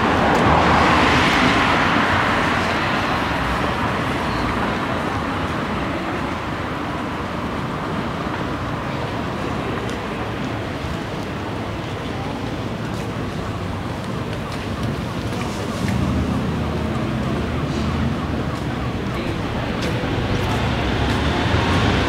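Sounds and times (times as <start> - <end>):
city traffic hum: 0.0 - 22.0.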